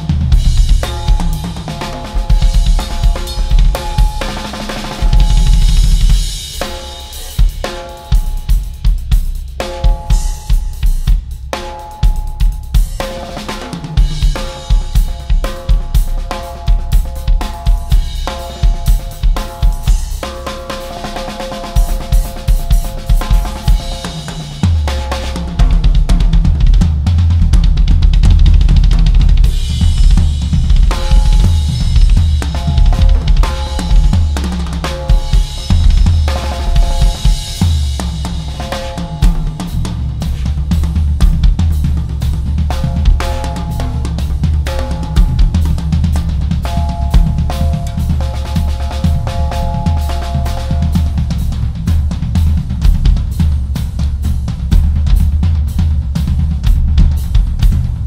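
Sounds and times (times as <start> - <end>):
cymbal wash: 0.0 - 26.3, 29.4 - 41.4, 42.0 - 52.9
drum kit playing: 0.0 - 58.0
toms ringing: 0.7 - 8.6, 30.9 - 39.7, 42.7 - 51.7.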